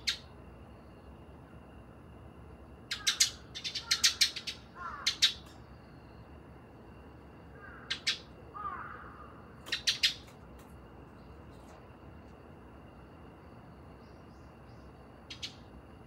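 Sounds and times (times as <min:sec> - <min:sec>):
sparrows chirping: 0:00.0 - 0:00.4, 0:02.9 - 0:06.1, 0:07.6 - 0:10.4, 0:13.9 - 0:15.8.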